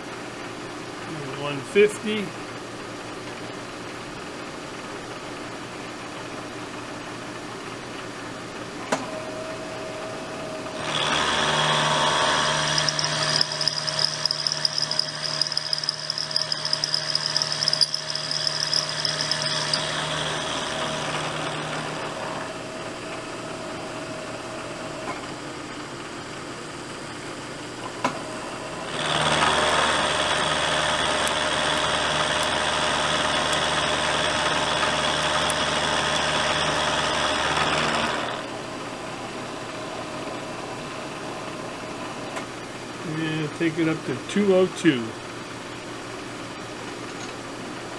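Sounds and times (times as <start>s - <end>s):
spindle running: 10.8s - 22.4s, 28.9s - 38.4s
milling machine cutting metal: 10.8s - 22.6s, 28.8s - 38.5s.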